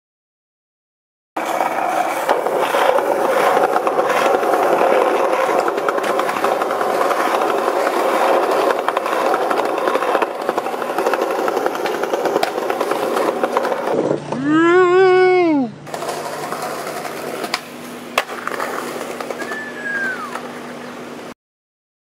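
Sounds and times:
skateboard wheels rolling on concrete: 1.4 - 21.4.

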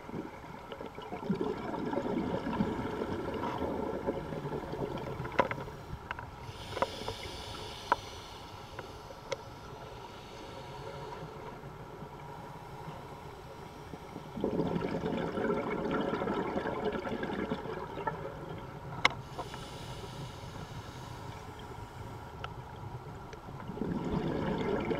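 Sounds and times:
exhaled bubbles gurgling: 0.0 - 5.5, 14.1 - 19.0, 23.6 - 24.9
diver breathing through a regulator: 5.7 - 11.5, 19.2 - 22.3.

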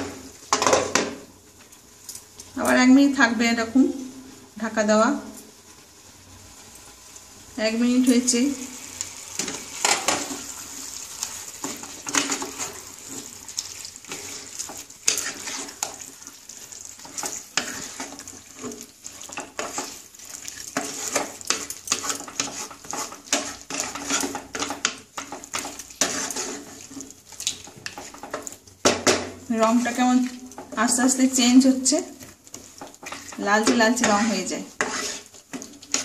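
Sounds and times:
meat sizzling in pan: 0.0 - 3.5, 4.1 - 36.0
wooden spatula scraping pan: 9.4 - 36.0.

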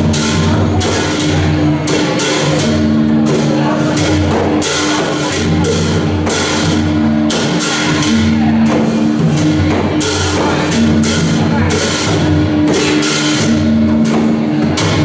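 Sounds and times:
barrel drum beat: 0.0 - 15.0
hand cymbals clashing: 0.0 - 15.0.

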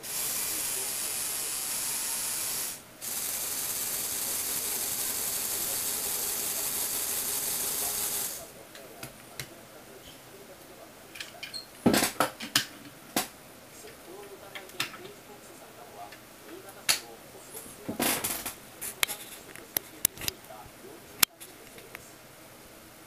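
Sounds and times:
motor driven gears whirring: 0.0 - 8.4
plastic clicks and clacks: 14.5 - 15.2.

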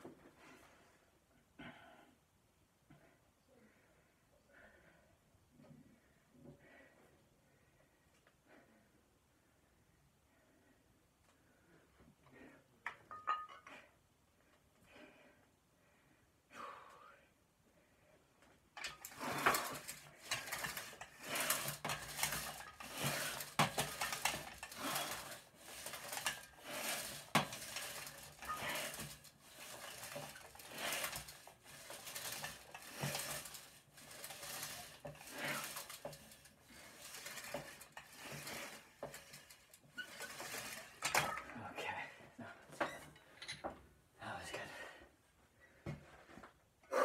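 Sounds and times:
weight plates clinking on barbell: 13.0 - 13.8.

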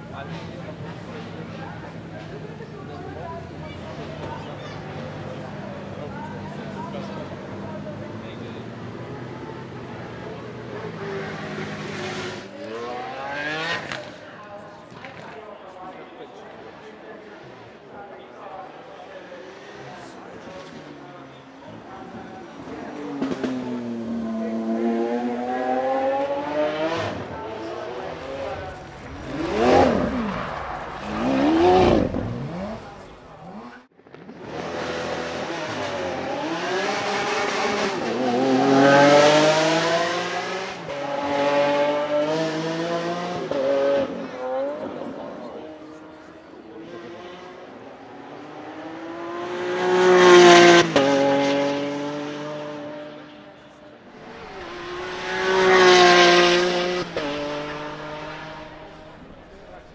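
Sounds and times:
car engine revving: 23.2 - 44.2, 54.2 - 59.9.

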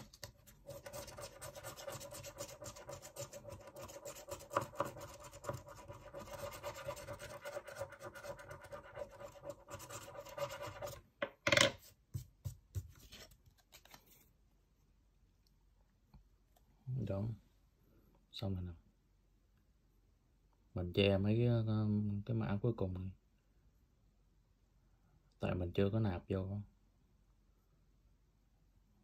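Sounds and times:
scratching scratch-off card coating: 0.0 - 11.0.

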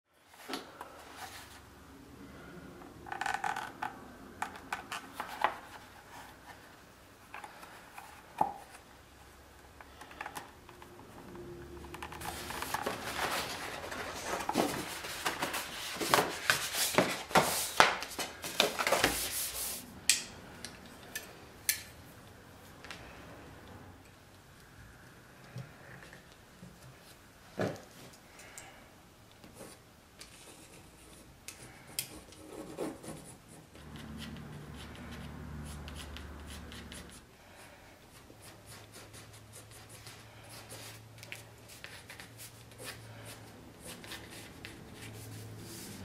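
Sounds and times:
rubbing and rustling on workbench: 12.2 - 19.9.

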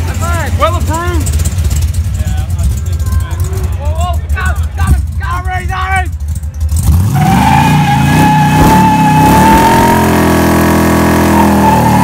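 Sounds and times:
car engine at high revs: 6.6 - 12.0
tyres squealing: 7.1 - 10.3.

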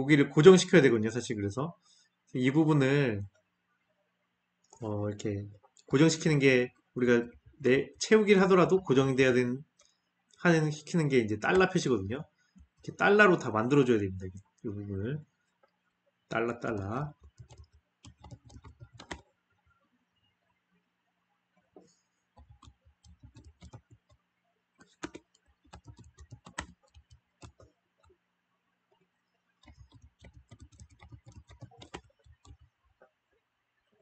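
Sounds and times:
computer keyboard typing: 11.5 - 11.8, 16.5 - 19.3, 22.4 - 24.2, 24.8 - 28.2, 29.6 - 32.8.

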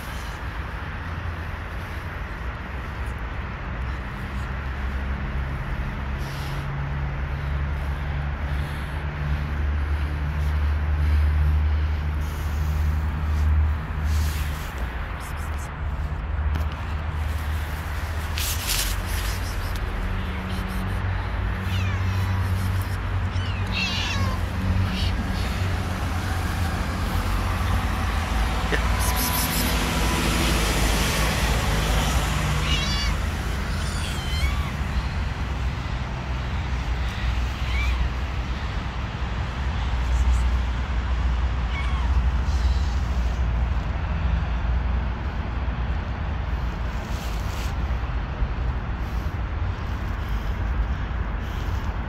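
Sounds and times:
outdoor rumble and hiss: 0.0 - 52.0
cat meowing: 19.2 - 25.9, 32.4 - 35.2, 37.0 - 38.1, 41.6 - 42.9.

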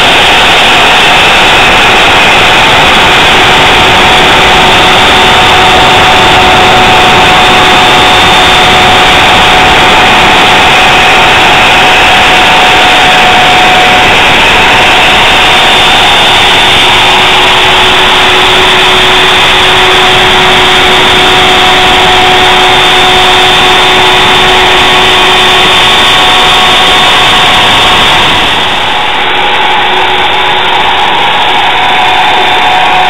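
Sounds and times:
router spindle whine: 0.0 - 33.0.

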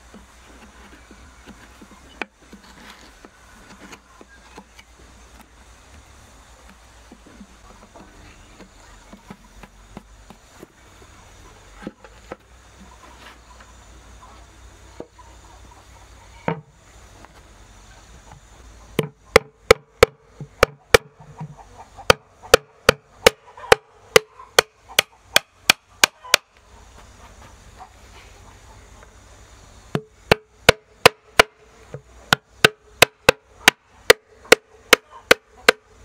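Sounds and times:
hammer striking wood: 19.0 - 21.1, 22.1 - 26.4, 29.9 - 31.6, 32.3 - 35.8.

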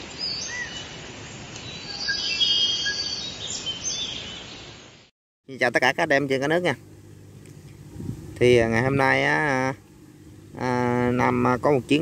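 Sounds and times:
birds chirping and whistling: 0.2 - 1.0, 1.6 - 4.8.

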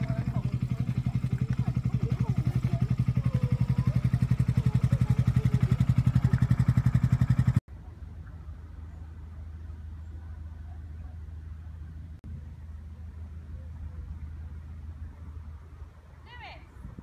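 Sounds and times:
diesel engine chugging: 0.0 - 7.9
faint low hum: 7.7 - 17.0.

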